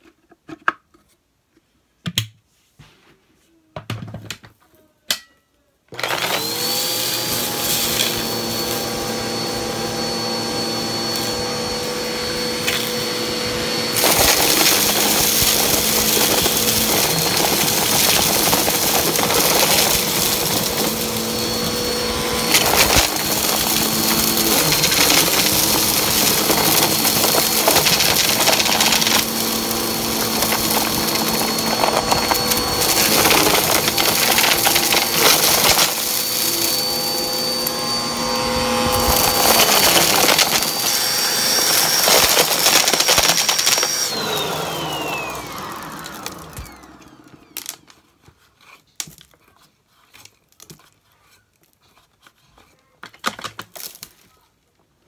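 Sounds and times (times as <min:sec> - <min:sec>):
vacuum cleaner motor whine: 0:05.9 - 0:48.2
debris rattling in vacuum: 0:06.0 - 0:47.9.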